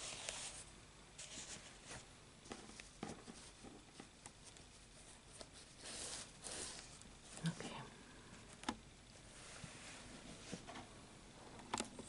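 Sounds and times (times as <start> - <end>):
faint clicks and rustles of yarn: 6.7 - 9.8.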